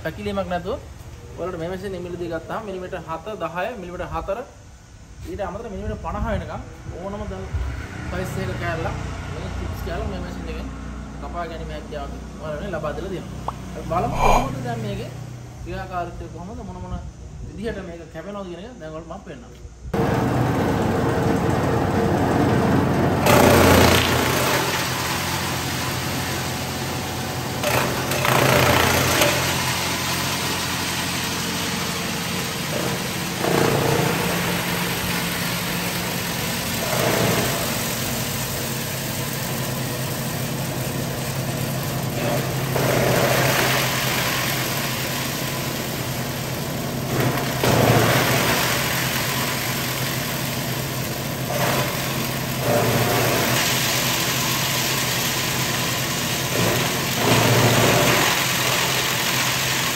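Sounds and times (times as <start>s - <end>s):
rough chopping of husks: 13.5s - 14.5s
chipping machine motor humming: 20.0s - 59.9s.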